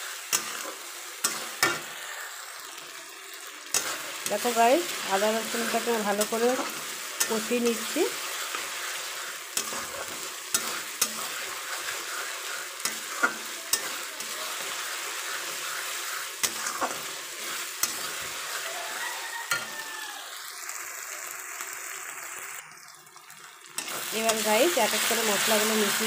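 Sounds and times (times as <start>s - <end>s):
onions sizzling in hot oil: 0.0s - 26.0s
metal spatula scraping a pan: 0.2s - 2.3s, 3.7s - 19.8s.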